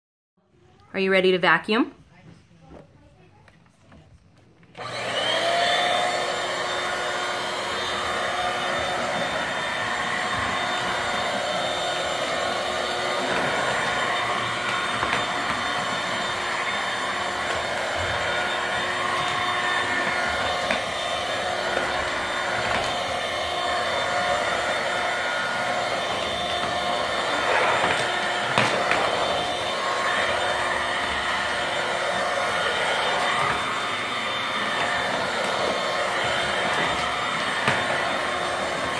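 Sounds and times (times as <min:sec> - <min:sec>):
vacuum cleaner motor whine: 0:04.6 - 0:38.9.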